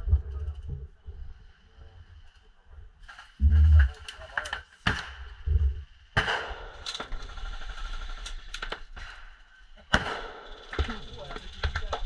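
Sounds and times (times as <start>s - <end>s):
airsoft gun shots: 4.8s - 5.3s, 6.2s - 7.3s, 9.9s - 11.9s.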